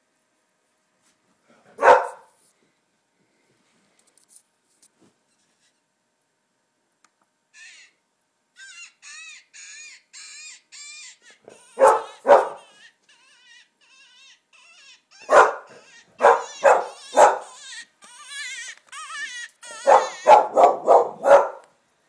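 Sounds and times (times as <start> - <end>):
dog barking: 1.8 - 2.4, 11.7 - 12.8, 15.2 - 17.6, 19.7 - 21.7.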